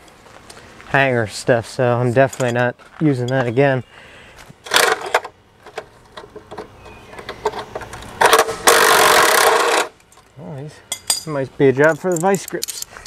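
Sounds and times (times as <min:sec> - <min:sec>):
metal tools clinking on frame: 0:02.2 - 0:03.7, 0:10.0 - 0:13.0.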